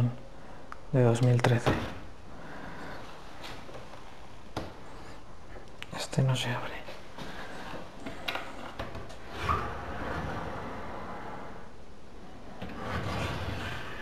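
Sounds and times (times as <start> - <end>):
drawer of pots pulled open: 12.7 - 14.0.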